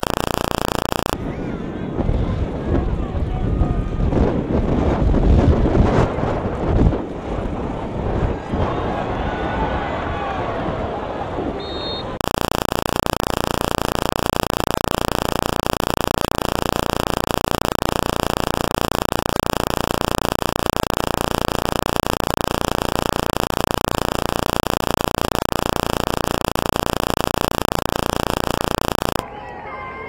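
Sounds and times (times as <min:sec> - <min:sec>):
harsh static noise: 0:00.0 - 0:01.2, 0:12.2 - 0:29.2.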